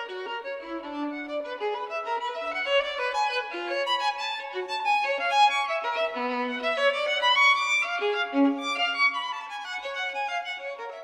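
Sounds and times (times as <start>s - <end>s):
violin melody: 0.0s - 11.0s.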